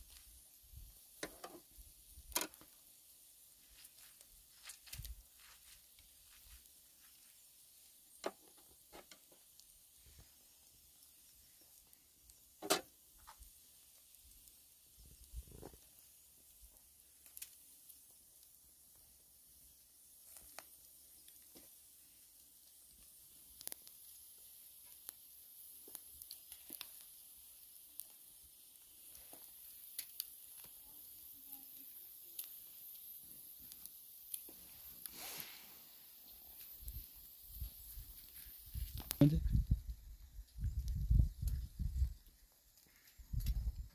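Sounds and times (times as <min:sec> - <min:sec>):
light clicks and taps at grill: 0:00.0 - 0:19.6, 0:20.2 - 0:35.2, 0:36.5 - 0:43.9
crackles and pops from coals: 0:00.0 - 0:43.9
kebabs sizzling: 0:00.0 - 0:43.9
soft rustle: 0:03.5 - 0:07.8, 0:31.6 - 0:39.2.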